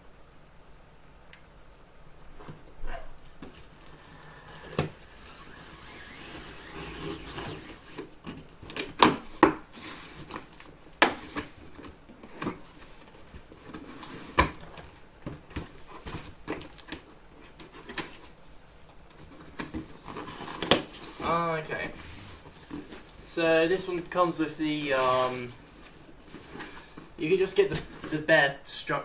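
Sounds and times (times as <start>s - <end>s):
cardboard scraping and rustling: 3.4s - 18.4s, 19.2s - 23.2s, 24.7s - 28.2s.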